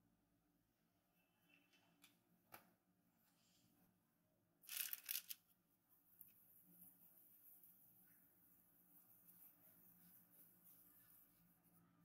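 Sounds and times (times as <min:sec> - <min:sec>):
parchment paper crinkling: 0:04.7 - 0:05.4.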